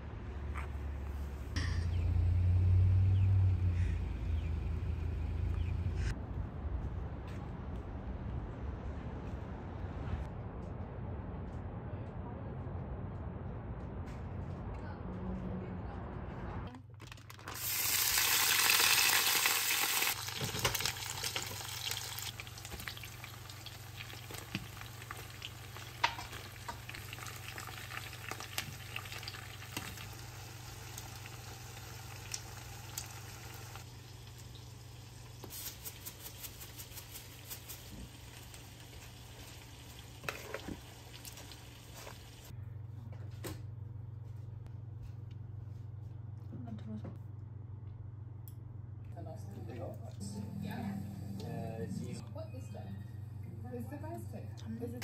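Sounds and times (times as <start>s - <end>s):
food sizzling in a pan: 17.5s - 42.5s.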